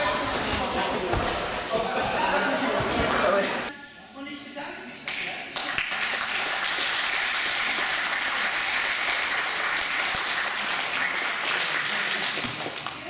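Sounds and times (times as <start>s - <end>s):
crowd applauding: 5.6s - 13.0s.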